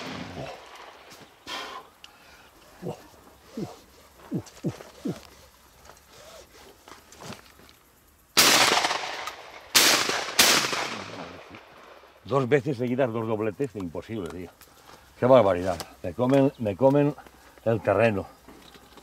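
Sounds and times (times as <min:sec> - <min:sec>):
shotgun shots echoing: 0:08.4 - 0:11.7.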